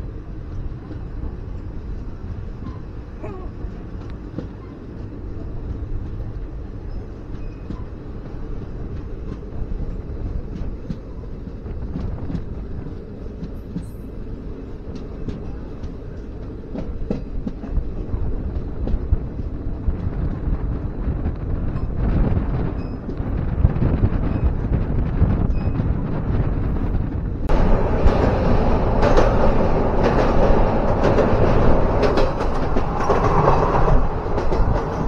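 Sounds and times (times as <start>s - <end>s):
train wheels rumbling on track: 0.0s - 35.0s
sharp clicks of rails: 27.4s - 35.0s.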